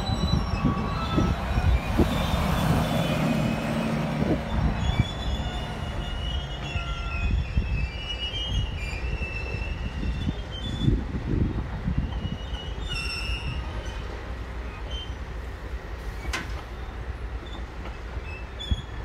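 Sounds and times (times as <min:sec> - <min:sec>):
bus passing by: 0:00.0 - 0:06.6
diesel locomotive engine rumbling: 0:00.0 - 0:19.0
rail wheels squealing: 0:00.0 - 0:19.0.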